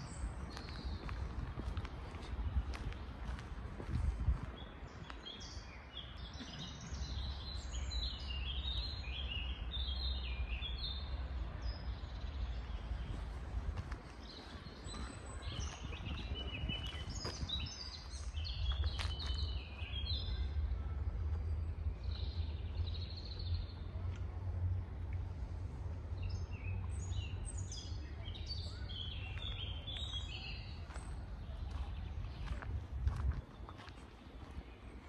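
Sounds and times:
steady low rumble: 0.0s - 5.4s, 9.6s - 35.0s
songbirds chirping and trilling: 0.0s - 35.0s.

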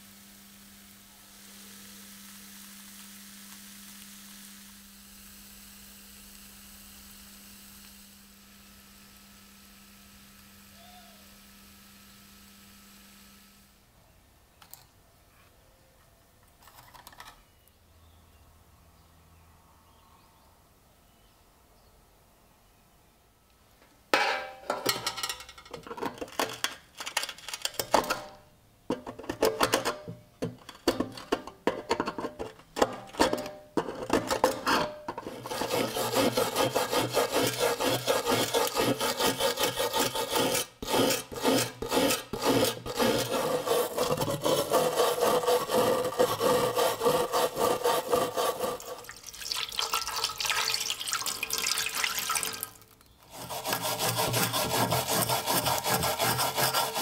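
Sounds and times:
hand tool scraping iron: 24.2s - 49.2s, 53.2s - 57.0s.

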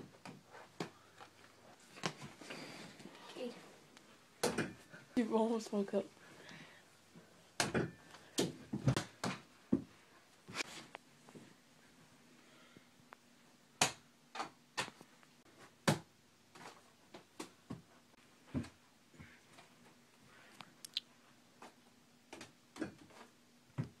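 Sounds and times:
faint steady hum: 0.0s - 24.0s
ball knocking and thumping: 4.4s - 4.9s, 7.6s - 10.0s, 15.8s - 16.1s.

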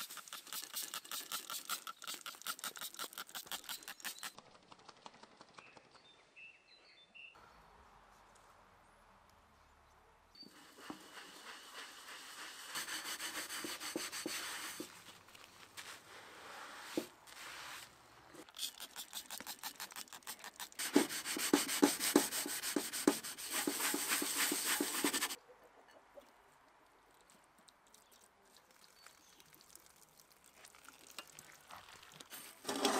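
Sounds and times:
brush scrubbing pot: 0.0s - 4.2s, 10.5s - 15.2s, 18.4s - 25.4s, 31.2s - 32.9s
sponge rubbing pot: 10.5s - 15.2s, 18.6s - 25.4s.

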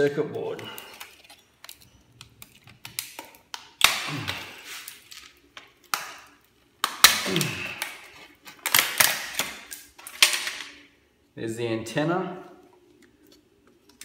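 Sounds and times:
plastic case clicking and cracking: 0.4s - 4.0s, 5.1s - 10.7s
loud plastic snaps: 0.8s - 5.0s, 5.6s - 10.8s.

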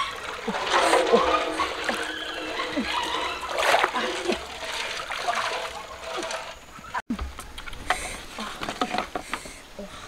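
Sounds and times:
water splashing and sloshing: 0.0s - 7.0s.

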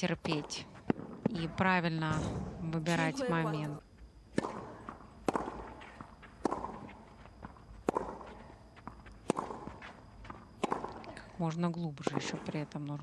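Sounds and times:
racket striking tennis ball: 4.3s - 7.0s, 7.8s - 8.4s, 9.2s - 9.9s, 10.5s - 11.0s.

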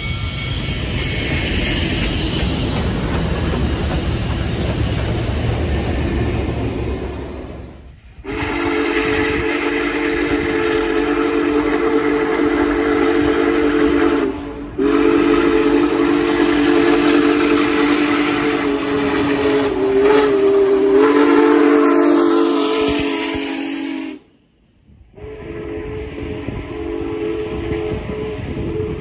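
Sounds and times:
steam hiss: 0.0s - 29.0s
steam locomotive whistle: 8.2s - 24.4s, 25.2s - 29.0s.

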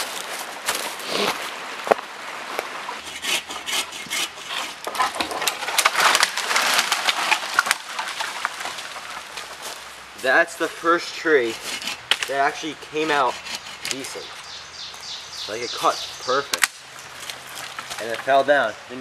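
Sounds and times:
wood cracking and splintering: 3.0s - 9.9s, 16.5s - 18.5s
tree falling through branches: 4.8s - 10.3s, 16.5s - 18.6s.

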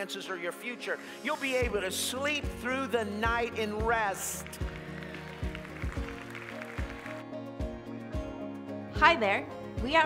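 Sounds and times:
background music with low beat: 1.3s - 10.0s.

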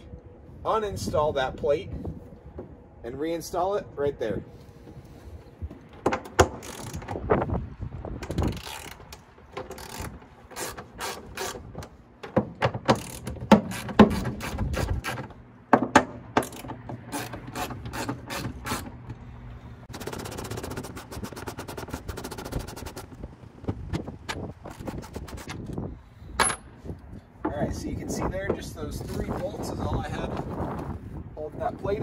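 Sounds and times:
ratchet wrench clicking: 6.6s - 7.1s, 8.2s - 11.6s
tool and metal knocks: 11.8s - 14.4s, 15.2s - 18.6s.

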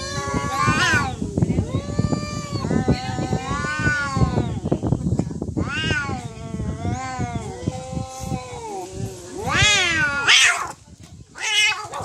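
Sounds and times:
cats yowling: 0.0s - 4.7s, 5.6s - 10.8s, 11.4s - 12.0s
cat screech: 5.6s - 6.2s.

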